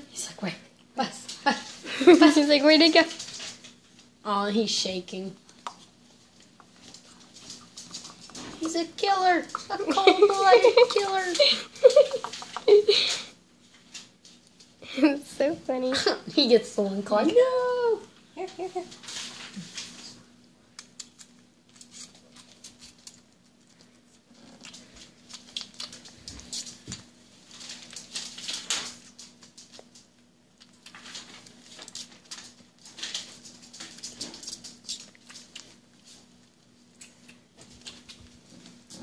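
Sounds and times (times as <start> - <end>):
faint steady hum: 0.0 - 39.0
squirrel sucking and smacking: 20.7 - 39.0.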